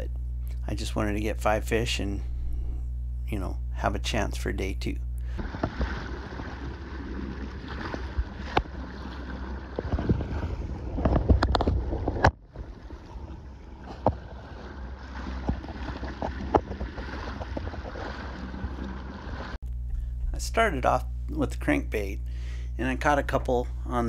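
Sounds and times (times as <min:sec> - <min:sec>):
wind rumbling on microphone: 0:02.2 - 0:02.9, 0:05.4 - 0:20.4
water sloshing against hull: 0:02.2 - 0:03.0, 0:05.2 - 0:20.3.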